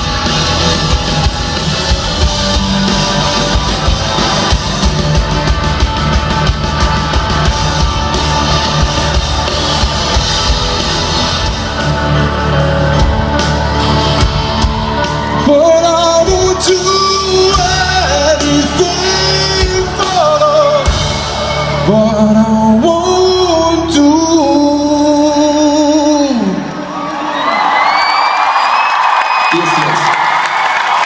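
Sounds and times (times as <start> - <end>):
rock band playing live: 0.0 - 27.8
person singing: 14.6 - 26.7.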